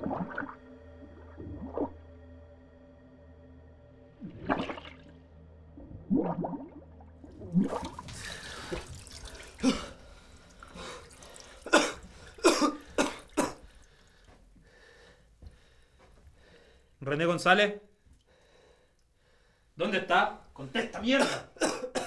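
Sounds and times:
water splashing and dripping: 4.2s - 5.2s, 5.8s - 14.5s
man coughing and gasping: 9.5s - 10.1s, 11.6s - 13.7s, 20.8s - 22.0s.

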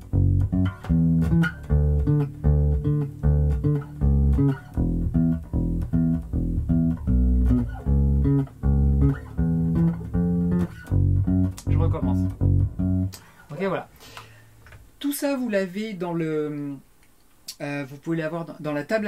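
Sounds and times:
electric bass guitar riff: 0.0s - 13.3s.

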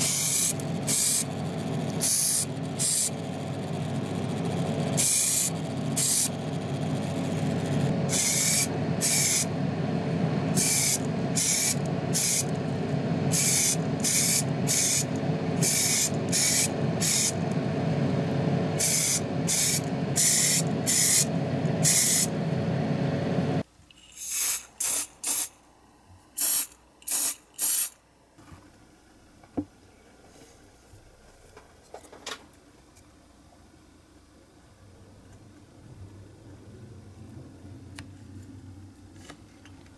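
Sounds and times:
spray paint hissing bursts: 0.0s - 1.3s, 2.0s - 3.1s, 5.0s - 6.3s, 8.1s - 9.5s, 10.6s - 12.5s, 13.3s - 17.4s, 18.8s - 22.3s, 24.1s - 25.6s, 26.4s - 28.0s
steady motor hum: 0.0s - 23.6s.

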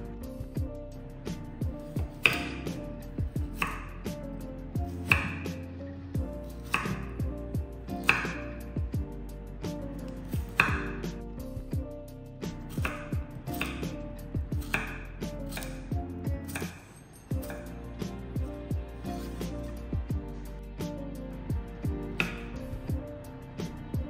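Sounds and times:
background music: 0.0s - 24.0s
knife chopping on wooden board: 2.0s - 2.8s, 3.4s - 3.9s, 4.9s - 5.6s, 6.6s - 7.2s, 8.0s - 8.6s, 10.2s - 11.1s, 12.7s - 17.7s, 22.2s - 22.5s.

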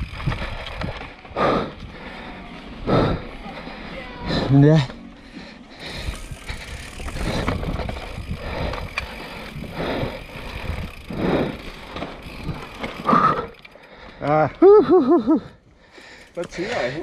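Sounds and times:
wind buffeting microphone: 0.0s - 2.1s, 5.9s - 11.5s
tyres rolling over dirt: 0.0s - 14.6s
bike rattling and clicking: 0.0s - 17.0s.

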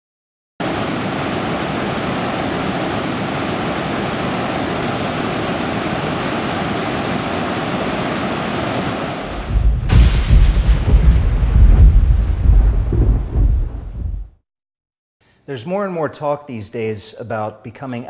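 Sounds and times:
waterfall rushing: 0.6s - 9.6s
deep thunder rumble: 9.3s - 14.4s.

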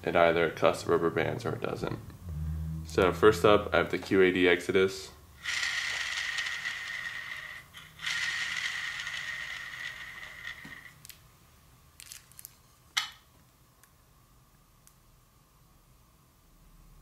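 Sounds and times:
arrow spinner whirring: 5.4s - 11.1s.

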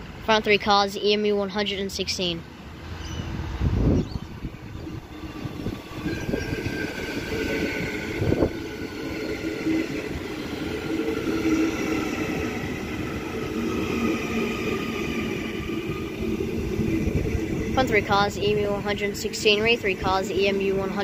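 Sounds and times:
train wheels rumbling on rail: 0.0s - 21.0s
electric traction motor whine: 4.4s - 19.3s.

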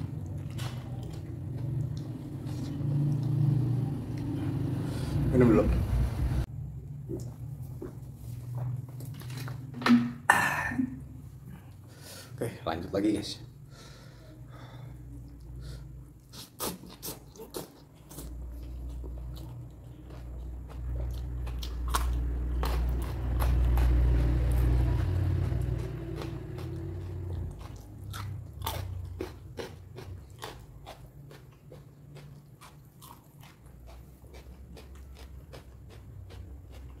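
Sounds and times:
person chewing crunchy food: 0.0s - 4.8s, 15.3s - 37.0s.

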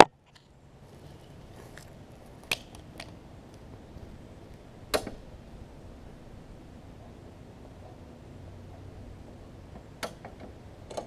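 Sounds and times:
footsteps on asphalt: 0.3s - 4.7s.

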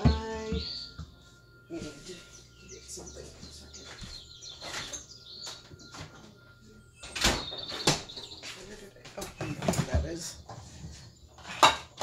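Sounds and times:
cupboard and bowl knocks and rattles: 9.2s - 12.0s.

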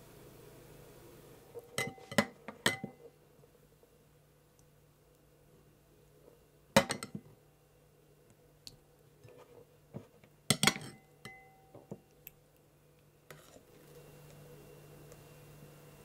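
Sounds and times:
light taps and soft scrapes: 9.2s - 10.3s, 13.3s - 14.4s
ladle clinking against glass bowl: 10.5s - 11.6s
glass ringing: 10.6s - 11.7s.

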